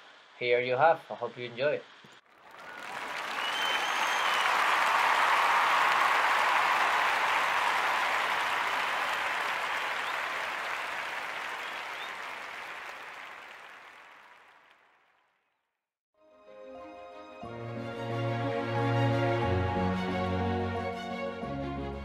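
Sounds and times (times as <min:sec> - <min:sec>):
applause: 0:02.2 - 0:15.6.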